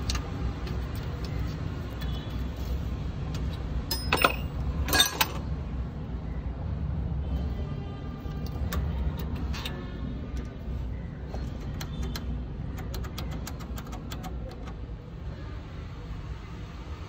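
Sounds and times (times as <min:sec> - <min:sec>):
metallic clicks and clinks: 0:03.4 - 0:05.4.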